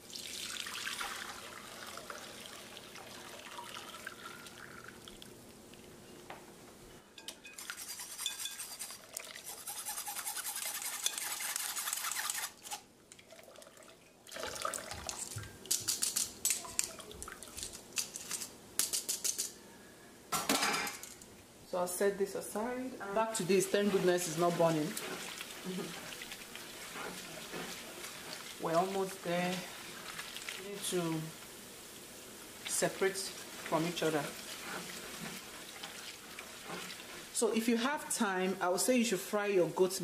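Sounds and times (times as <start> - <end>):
liquid pouring and splashing: 0.0 - 5.9, 13.1 - 15.8, 16.4 - 17.7, 23.6 - 31.0, 32.5 - 37.4
metal spoon scraping sieve: 7.5 - 12.8, 23.1 - 29.2.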